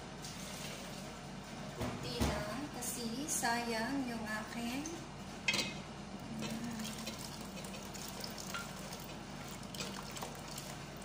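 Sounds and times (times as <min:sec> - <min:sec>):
liquid pouring from a blender jar: 0:06.8 - 0:11.0.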